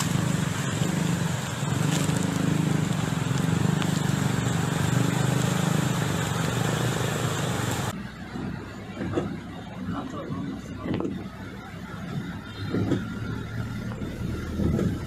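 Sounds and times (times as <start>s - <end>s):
hiss of moving water: 0.0s - 7.9s
vehicle engine running: 0.0s - 15.0s.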